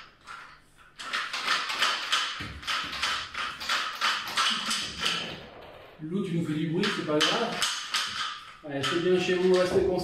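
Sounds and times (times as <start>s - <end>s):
fast crisp taps: 1.0s - 5.5s, 6.8s - 10.0s.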